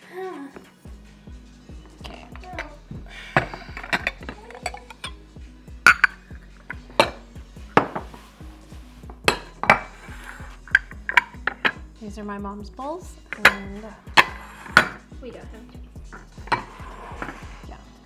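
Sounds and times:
soft background music: 0.0s - 18.0s
dishes clinking: 3.4s - 5.2s, 5.8s - 8.2s, 13.3s - 15.0s, 16.2s - 17.4s.

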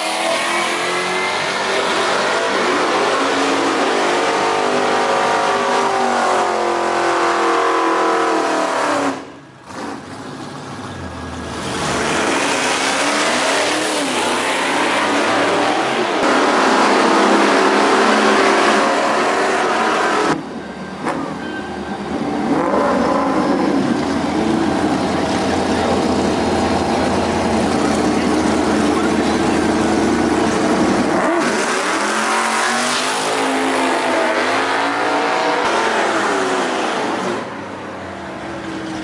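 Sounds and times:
drag race cars accelerating: 0.0s - 39.0s.

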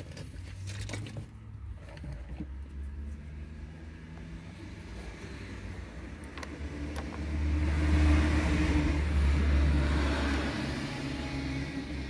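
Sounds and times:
car driving past: 6.6s - 12.0s.

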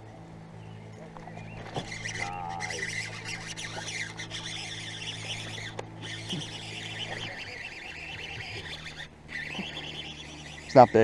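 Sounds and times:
steady low hum: 0.0s - 11.0s
birds chirping and calling: 0.6s - 11.0s.

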